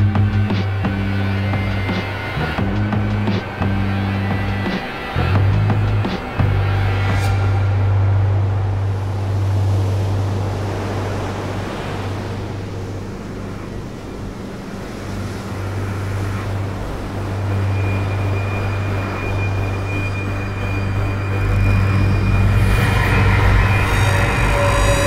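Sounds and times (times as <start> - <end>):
low rumbling drone: 0.0 - 25.0
rushing wind-like hiss: 0.0 - 25.0
thin high tone: 17.3 - 25.0.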